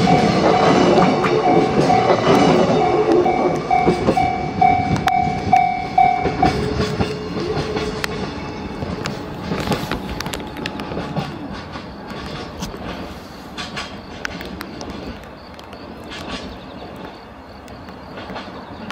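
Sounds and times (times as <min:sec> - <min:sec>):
repeating ringing tone: 0:00.0 - 0:06.7
train wheels clicking over rail joints: 0:00.0 - 0:18.9.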